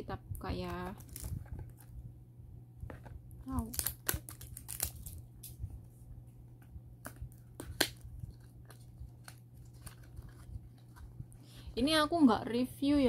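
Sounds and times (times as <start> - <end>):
plastic shrink-wrap crinkling: 0.5 - 1.9, 3.4 - 5.6, 7.3 - 11.2.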